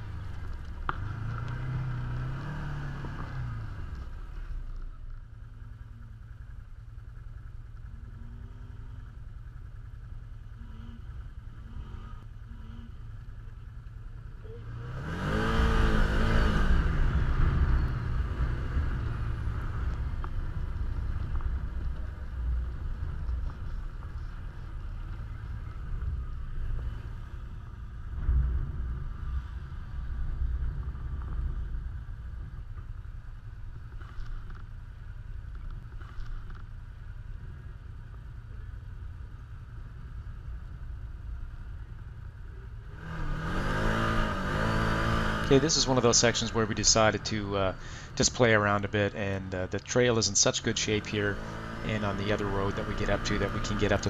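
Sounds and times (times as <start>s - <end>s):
loud engine rev: 0.0s - 4.0s, 14.6s - 20.0s, 42.9s - 48.8s, 50.6s - 54.0s
engines rumbling: 0.0s - 54.0s.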